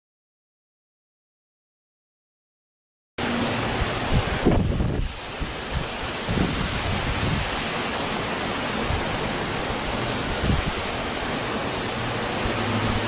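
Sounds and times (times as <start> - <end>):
steady rushing hiss: 3.2 - 13.0.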